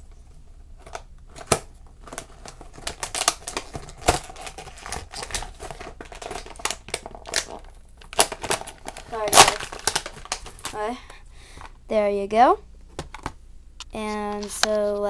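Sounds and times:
toy packaging crinkling: 0.8 - 11.0.

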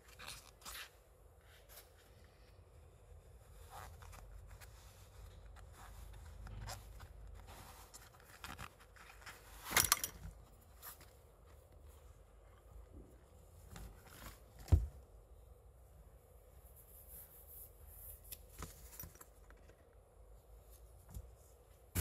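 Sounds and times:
rubber glove scrape: 0.0 - 9.8
rubber glove rubbing and rustling: 0.0 - 22.0.

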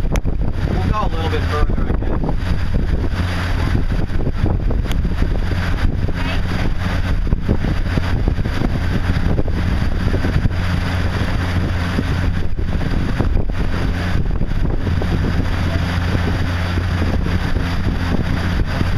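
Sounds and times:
motorboat engine running: 0.0 - 18.9
wind buffeting microphone: 0.0 - 18.9.

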